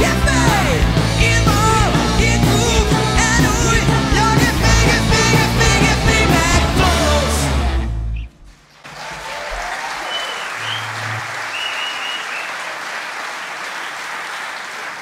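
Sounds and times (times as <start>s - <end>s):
audience applauding: 8.7s - 15.0s.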